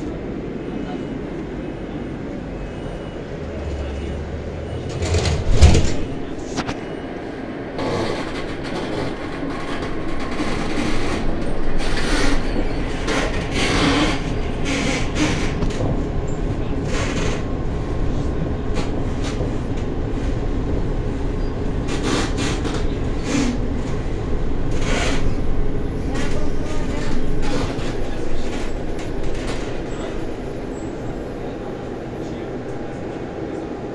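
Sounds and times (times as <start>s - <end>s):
tram rumbling on rails: 0.0s - 33.9s
rattles and clacks: 4.9s - 6.7s, 26.1s - 30.1s.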